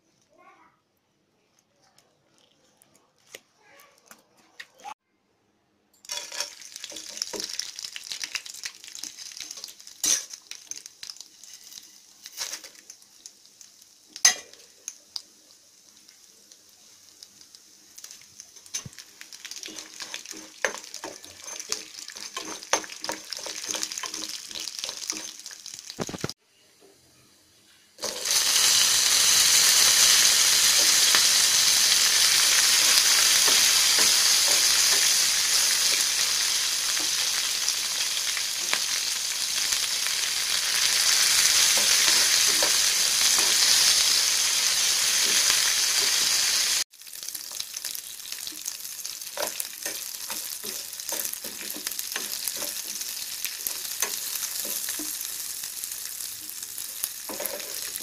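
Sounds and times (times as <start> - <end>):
chillies sizzling in hot oil: 6.0 - 26.4, 27.6 - 58.0
spatula scraping a pan: 19.7 - 25.5.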